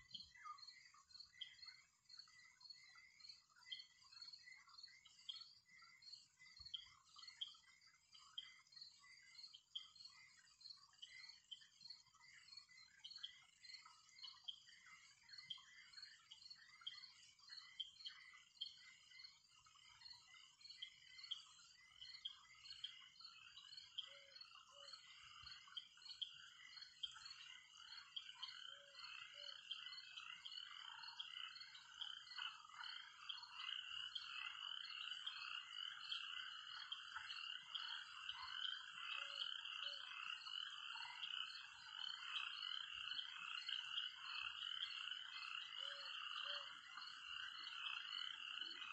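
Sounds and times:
frogs croaking: 0:00.0 - 0:48.9.

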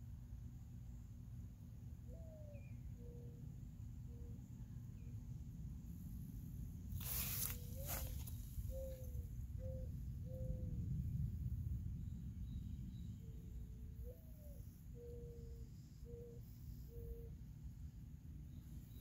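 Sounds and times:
low rumble of wind: 0:00.0 - 0:19.0
rustling: 0:07.0 - 0:08.5
low bird calls: 0:07.0 - 0:11.0, 0:12.5 - 0:17.4.

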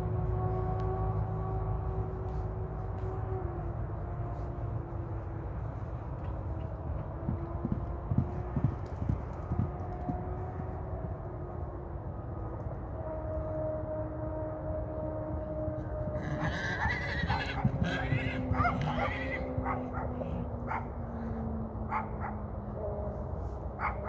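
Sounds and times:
horse galloping on dirt: 0:01.8 - 0:10.9, 0:16.2 - 0:20.9.

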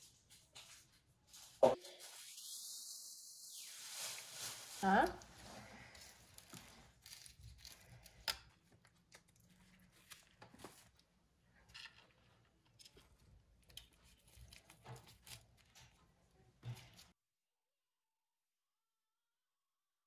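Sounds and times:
lettuce leaves rustling: 0:03.6 - 0:08.1.

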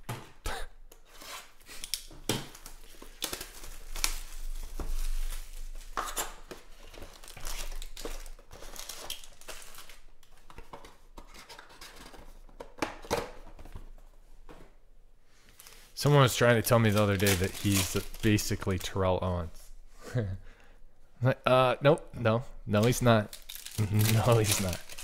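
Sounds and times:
plastic shrink wrap tearing: 0:01.6 - 0:10.0, 0:15.6 - 0:19.0, 0:22.8 - 0:25.0.

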